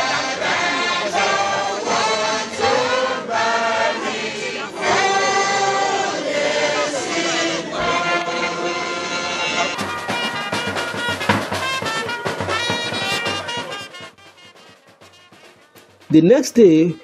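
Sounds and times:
choir singing: 0:00.0 - 0:10.6.

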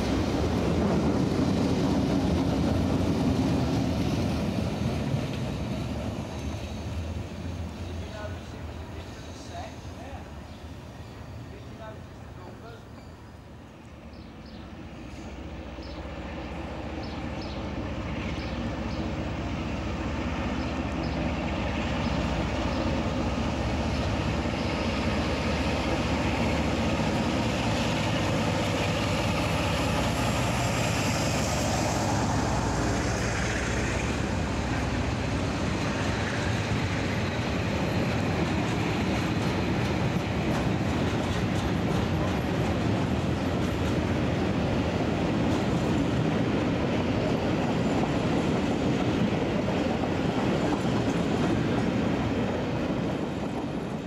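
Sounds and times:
diesel locomotive engine running: 0:14.8 - 0:54.0.

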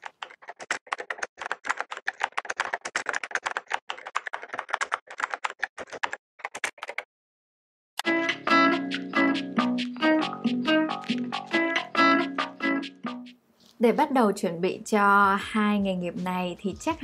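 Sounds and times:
keyboard typing: 0:00.0 - 0:07.1, 0:08.9 - 0:13.2
plucked music jingle: 0:08.0 - 0:13.3.

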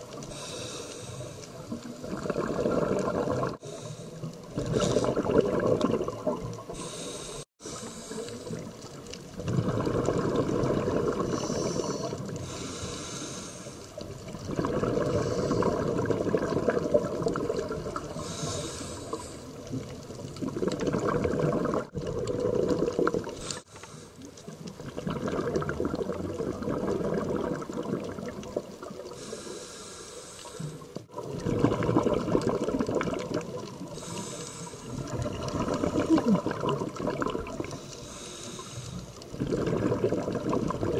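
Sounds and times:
regulator inhalation hiss: 0:00.3 - 0:01.6, 0:03.6 - 0:05.0, 0:06.7 - 0:08.7, 0:11.3 - 0:14.0, 0:18.2 - 0:19.6, 0:23.4 - 0:24.3, 0:29.2 - 0:31.0, 0:33.9 - 0:35.0, 0:37.7 - 0:39.2
gurgling exhaled bubbles: 0:01.5 - 0:12.7, 0:14.0 - 0:23.7, 0:24.5 - 0:29.4, 0:30.7 - 0:40.9.

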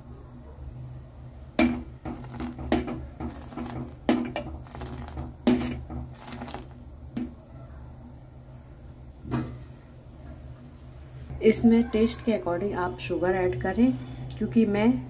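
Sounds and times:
steel strainer knocking on pot: 0:01.6 - 0:06.2
tea splashing: 0:01.7 - 0:07.3.

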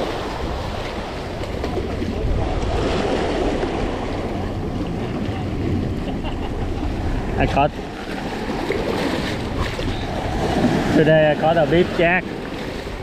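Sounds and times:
sea waves splashing against rocks: 0:00.0 - 0:13.0.

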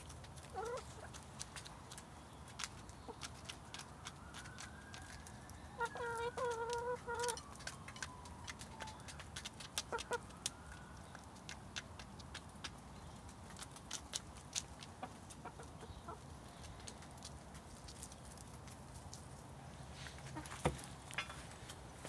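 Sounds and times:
hens clucking: 0:00.0 - 0:04.4, 0:05.8 - 0:10.4, 0:11.0 - 0:18.1, 0:20.1 - 0:20.9
beak taps on paving stones: 0:06.0 - 0:14.9.

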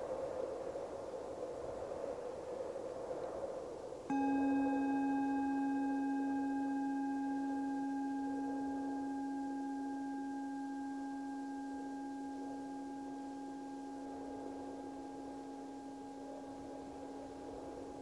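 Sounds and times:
soft wind: 0:00.0 - 0:18.0
singing bowl ringing: 0:04.1 - 0:18.0.

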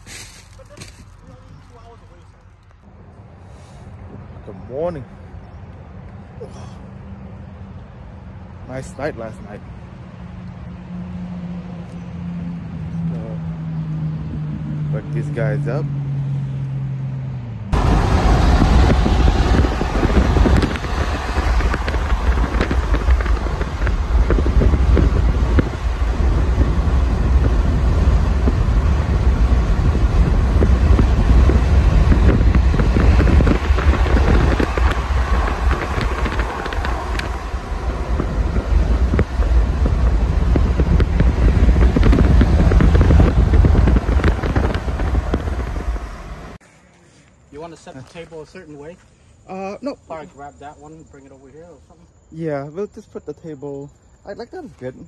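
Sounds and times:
car driving at highway speed: 0:02.6 - 0:46.6
wind buffeting microphone: 0:17.7 - 0:46.6.

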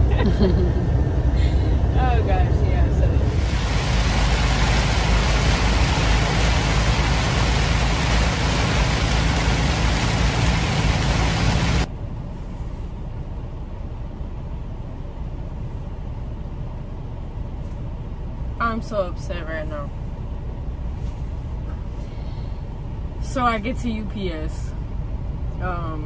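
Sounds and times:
low hum of parked cab: 0:00.0 - 0:26.0
road noise low rumble: 0:00.0 - 0:26.0
heavy rain on truck cab: 0:03.2 - 0:11.9.

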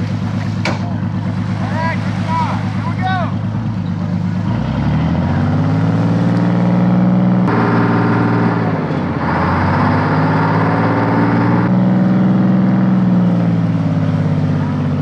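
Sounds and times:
boat diesel engine running: 0:00.0 - 0:15.0.

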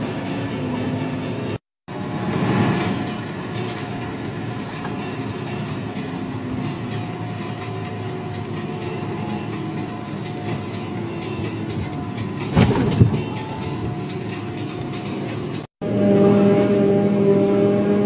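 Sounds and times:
tractor engine running: 0:00.0 - 0:18.0.

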